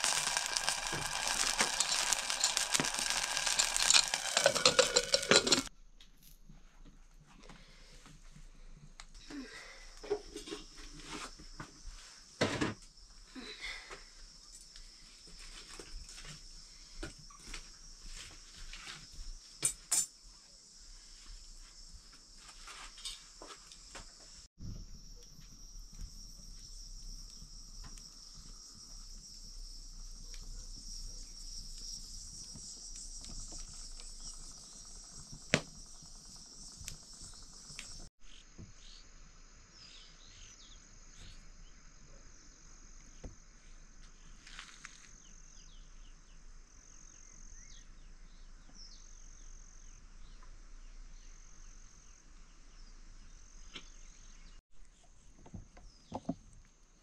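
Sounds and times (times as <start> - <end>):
insects droning: 0.0 - 5.7, 7.6 - 57.0
pulsing insect call: 0.0 - 5.7, 23.8 - 50.4.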